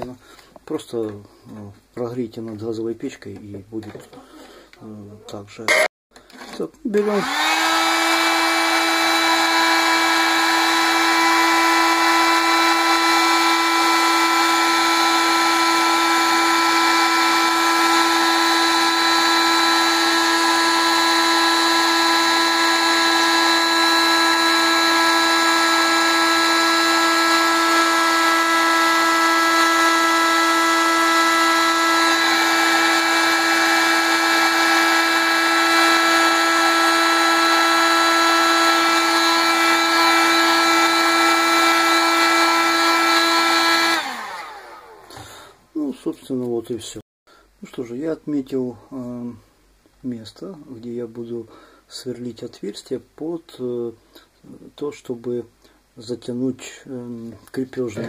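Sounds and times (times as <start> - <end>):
heat gun fan whine: 7.0 - 45.2.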